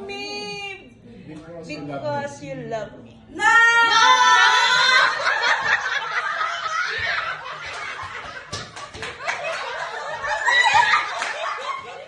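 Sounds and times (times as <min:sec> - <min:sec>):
women laughing: 0:04.1 - 0:12.0.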